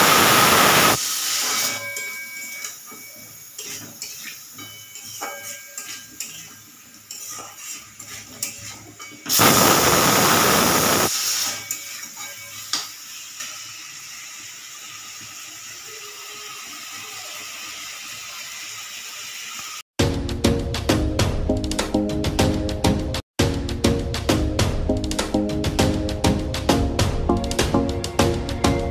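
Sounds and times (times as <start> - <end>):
steady steam hiss: 0.0 - 1.9, 9.3 - 11.6
pressure cooker whistle hissing: 0.0 - 3.2, 9.3 - 14.1.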